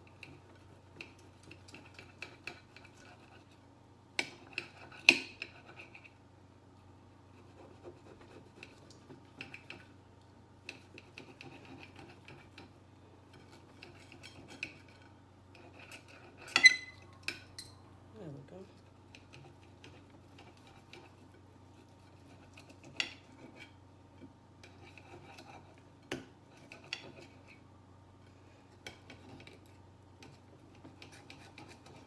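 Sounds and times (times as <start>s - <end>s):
knife scraping and clicking: 13.3s - 17.7s, 24.6s - 27.6s, 28.7s - 32.0s.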